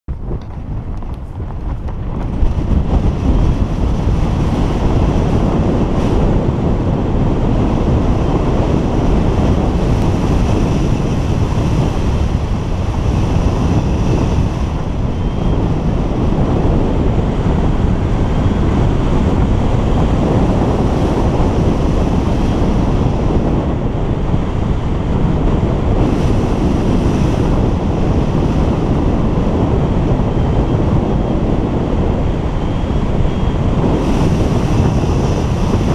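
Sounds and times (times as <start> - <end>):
wind rushing over microphone: 0.0 - 35.9.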